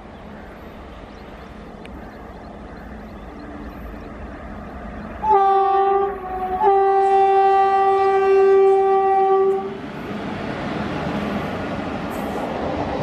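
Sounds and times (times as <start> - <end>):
train rumble: 0.0 - 13.0
train horn blasts: 5.2 - 9.8.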